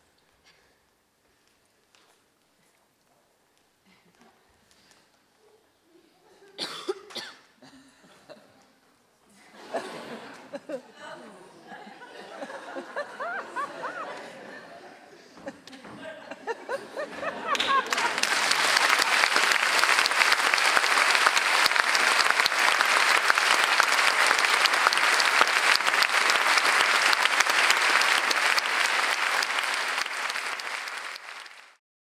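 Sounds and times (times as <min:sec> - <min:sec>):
audience applauding: 0:17.2 - 0:31.8.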